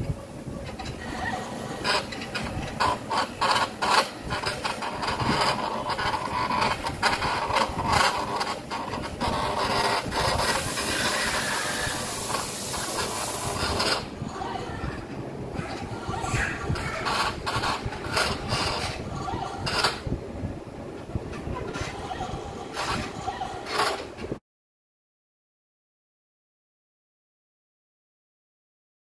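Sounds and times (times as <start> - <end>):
stepper motors driving: 0.0 - 20.2
high hiss: 10.5 - 13.9.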